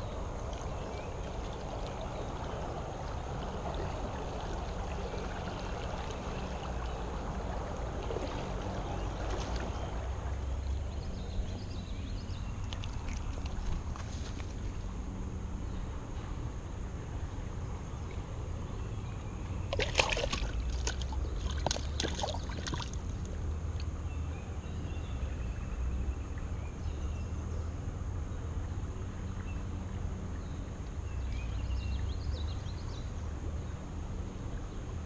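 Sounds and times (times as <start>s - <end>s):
low wind rumble: 0.0s - 35.0s
small splashes: 0.4s - 10.7s, 12.6s - 14.8s, 19.7s - 23.9s.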